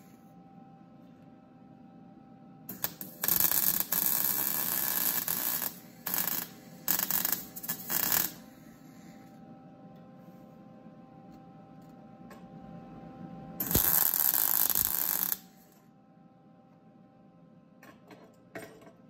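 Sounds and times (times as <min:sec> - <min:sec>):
electrical hum: 0:00.0 - 0:17.9
welder arc crackling: 0:02.7 - 0:08.5, 0:13.6 - 0:15.6.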